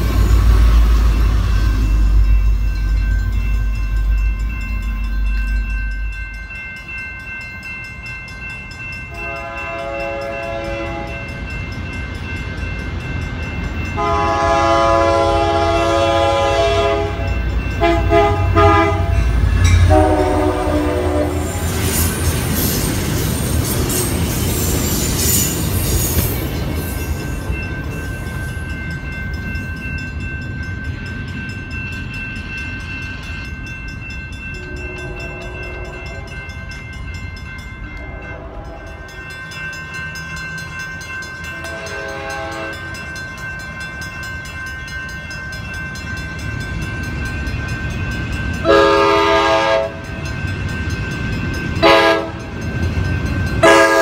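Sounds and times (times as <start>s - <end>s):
train cars rumbling past: 0.0s - 54.0s
train horn blasts: 9.1s - 11.3s, 14.0s - 21.7s, 34.6s - 36.4s, 38.0s - 39.0s, 41.5s - 43.0s, 48.6s - 50.0s, 51.8s - 52.4s, 53.6s - 54.0s.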